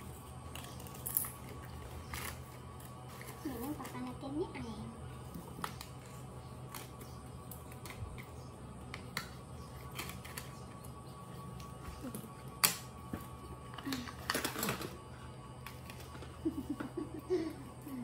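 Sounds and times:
plastic toys clattering: 13.8 - 15.0.

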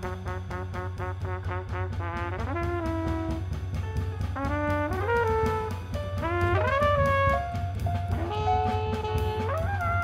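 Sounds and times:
drum kit: 0.0 - 10.0
jazz trumpet: 0.0 - 10.0
plucked double bass: 4.0 - 10.0.

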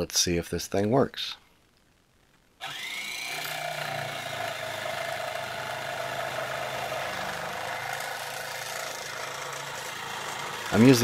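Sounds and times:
jigsaw motor humming and whining: 2.6 - 11.0.

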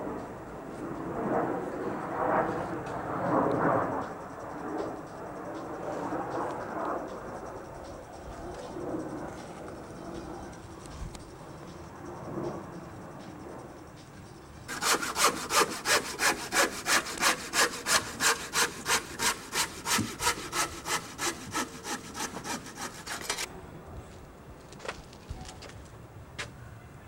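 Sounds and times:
handsaw cutting through wood: 14.7 - 23.5.

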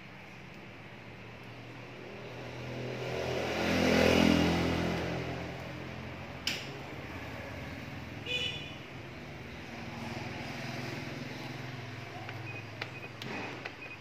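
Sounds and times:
vehicle engine passing by: 1.5 - 8.2, 9.0 - 12.4
sharp click: 6.4 - 6.8.

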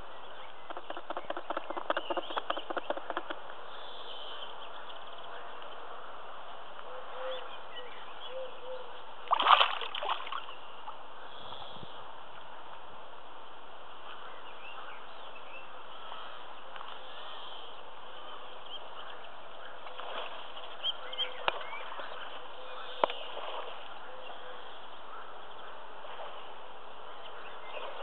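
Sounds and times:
fish splashing in shallow water: 9.2 - 11.0, 19.8 - 24.4.

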